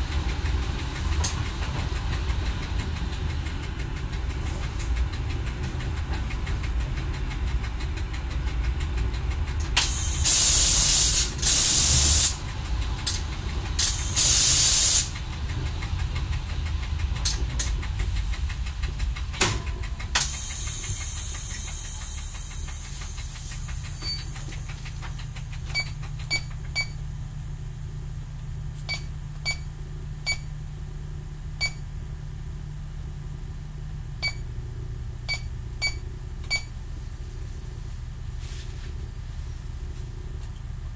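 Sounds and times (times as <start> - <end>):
diesel railcar engine running: 0.0 - 40.9
sharp ticks: 0.4 - 9.9, 15.0 - 26.9
brake air hiss: 9.8 - 25.2, 37.2 - 40.1.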